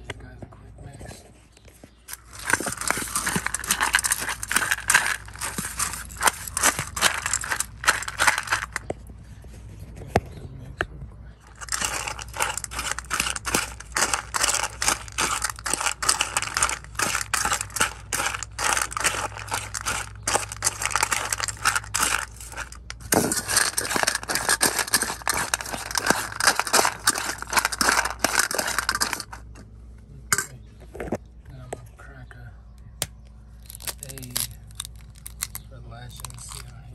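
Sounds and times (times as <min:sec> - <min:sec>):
kibble scraping in metal bowl: 0:02.1 - 0:08.9, 0:11.4 - 0:29.7.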